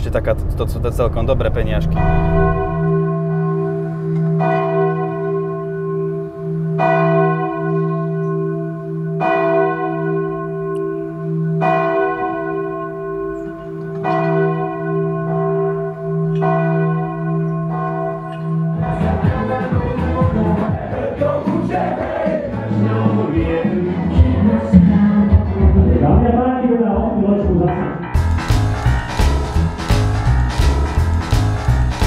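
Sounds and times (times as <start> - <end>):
church bell tolling: 0.0 - 20.0, 27.9 - 32.0.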